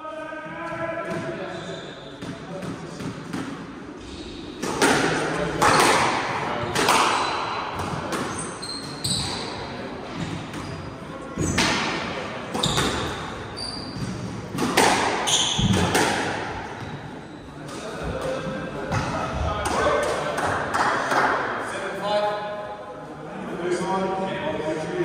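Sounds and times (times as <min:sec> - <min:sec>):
squash ball hits echoing: 0:04.5 - 0:10.8, 0:11.4 - 0:17.0
shoes squeaking on wooden floor: 0:08.3 - 0:09.5.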